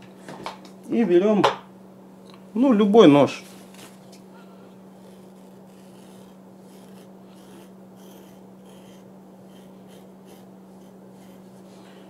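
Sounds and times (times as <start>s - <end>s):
steady low hum: 0.0s - 12.0s
knife blade scraping fabric: 4.9s - 12.0s.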